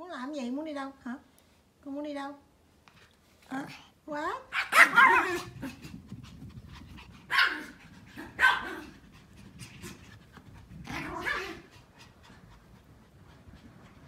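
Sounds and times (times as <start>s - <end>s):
dogs barking: 4.6s - 5.5s, 7.3s - 8.8s.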